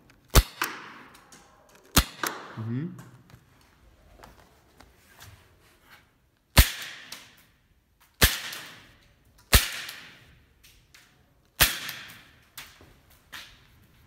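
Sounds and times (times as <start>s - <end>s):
airsoft pistol shots: 0.3s - 1.1s, 1.9s - 2.6s, 6.6s - 7.4s, 8.2s - 8.9s, 9.5s - 10.2s, 11.6s - 12.3s.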